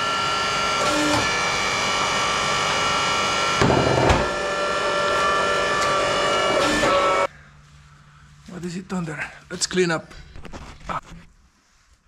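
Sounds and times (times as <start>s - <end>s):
log splitter motor whine: 0.0s - 7.3s.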